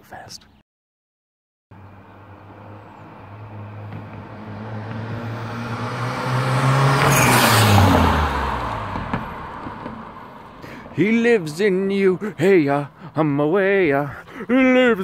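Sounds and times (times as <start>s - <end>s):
car driving past: 1.8s - 11.0s.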